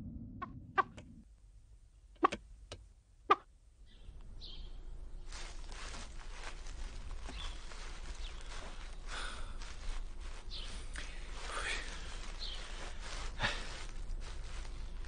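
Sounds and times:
steady hiss: 0:05.3 - 0:15.0.

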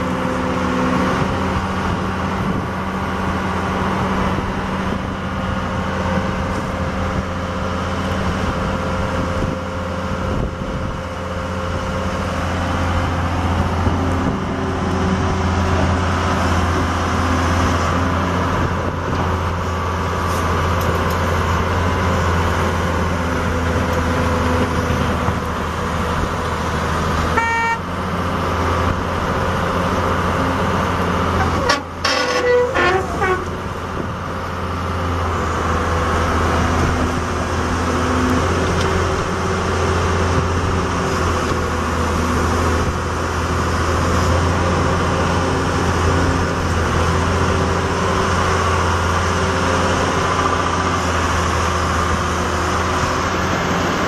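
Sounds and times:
diesel engine running: 0:00.0 - 0:54.0
short horn toot: 0:27.3 - 0:27.9.

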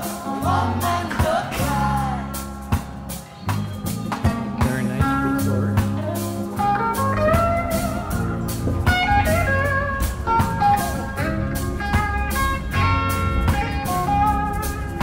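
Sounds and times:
blues music with slide guitar: 0:00.0 - 0:15.0.

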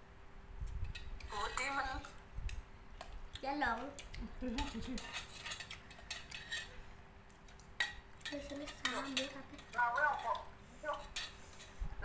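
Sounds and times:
spoons clinking against bowl: 0:04.6 - 0:06.7, 0:07.8 - 0:11.7.

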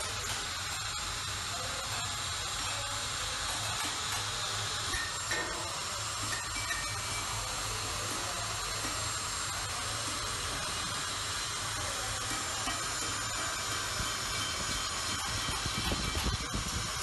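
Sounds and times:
rotary tool grinding: 0:00.0 - 0:17.0
thin high whine: 0:04.4 - 0:17.0.

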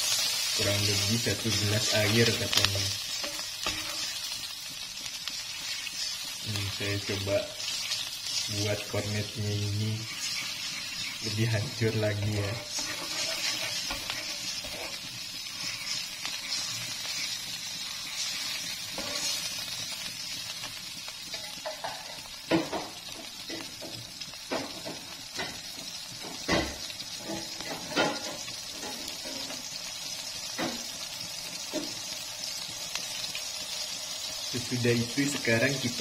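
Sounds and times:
spatula stirring: 0:00.0 - 0:20.3
broth sizzling in a wok: 0:00.0 - 0:36.0.

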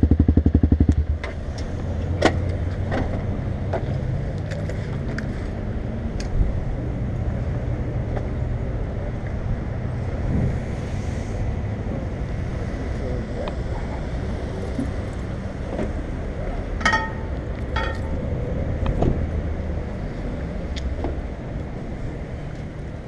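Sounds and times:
steady low rumble: 0:00.0 - 0:04.4.

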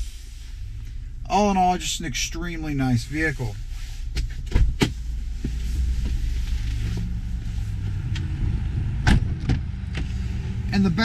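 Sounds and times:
car engine idling: 0:00.0 - 0:11.0.

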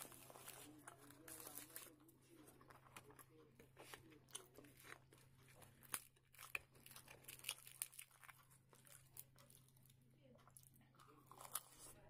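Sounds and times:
fried bread tearing and crackling: 0:04.2 - 0:09.8.

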